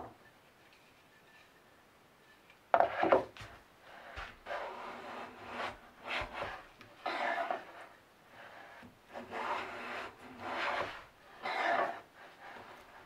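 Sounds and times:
wood scraping against wood: 0:02.7 - 0:13.0.

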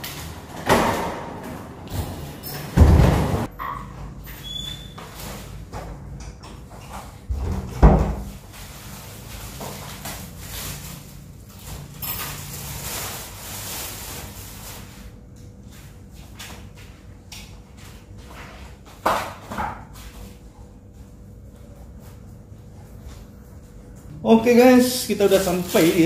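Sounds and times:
plastic bag rustling: 0:08.3 - 0:15.2, 0:24.3 - 0:26.0.

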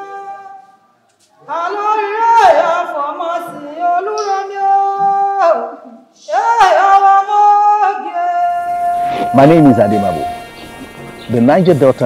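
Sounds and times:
women singing unaccompanied: 0:01.4 - 0:10.4.

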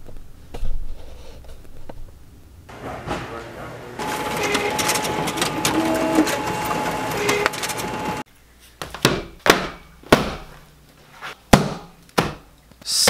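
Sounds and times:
office printer whirring: 0:02.7 - 0:08.3.

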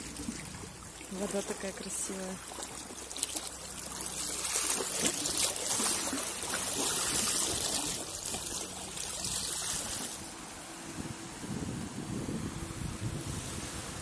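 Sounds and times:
water trickling among stones: 0:00.0 - 0:10.4
wavelets lapping on pebbles: 0:00.0 - 0:10.5.

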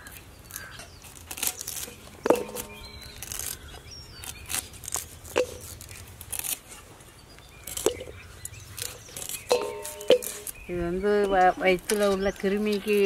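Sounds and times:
pieces clinking into metal bowl: 0:09.5 - 0:10.5.

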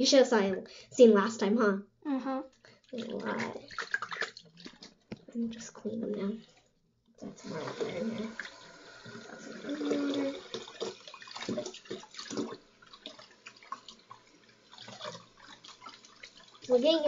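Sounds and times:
water splashes: 0:02.7 - 0:17.0
hands sloshing toy in water: 0:02.8 - 0:06.7
tap water running into sink: 0:02.9 - 0:17.0.

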